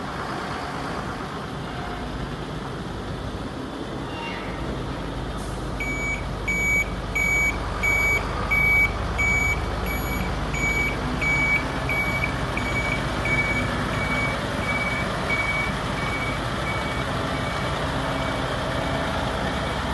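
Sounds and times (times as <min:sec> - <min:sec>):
diesel engine running: 0:04.6 - 0:19.9
truck reversing alarm beeping: 0:05.8 - 0:19.9.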